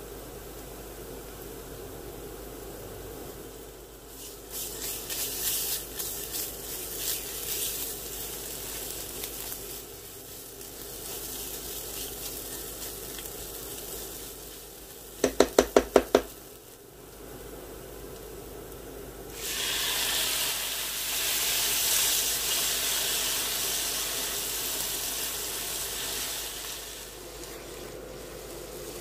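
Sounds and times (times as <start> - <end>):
onions sizzling in frying pan: 0.0 - 29.0
spatula stirring: 4.1 - 16.3.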